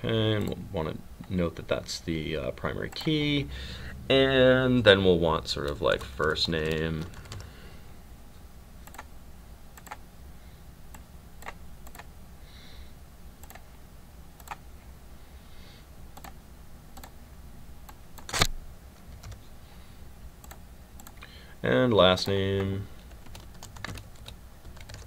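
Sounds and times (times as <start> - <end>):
low hum: 0.0 - 15.5.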